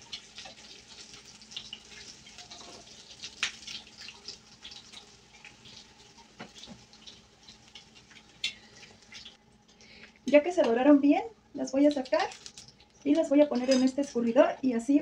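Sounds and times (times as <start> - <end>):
oil sizzling in frying pan: 0.0 - 9.4.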